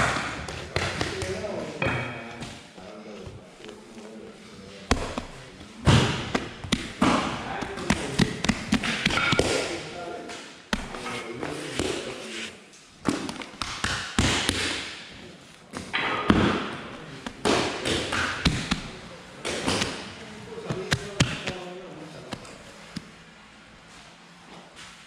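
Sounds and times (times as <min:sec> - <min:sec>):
hands slapping dough: 0:00.0 - 0:01.6, 0:04.9 - 0:11.0, 0:13.0 - 0:15.0, 0:15.7 - 0:20.1, 0:20.7 - 0:21.6.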